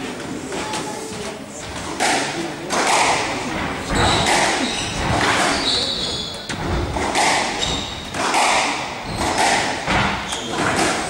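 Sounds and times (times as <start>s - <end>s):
squash ball struck by rackets: 1.8s - 11.0s
shoes squeaking on court floor: 3.8s - 8.4s, 9.0s - 11.0s.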